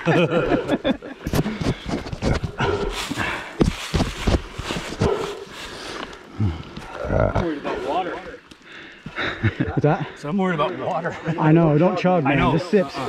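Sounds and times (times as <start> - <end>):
knocks and scuffs: 1.3 - 5.6.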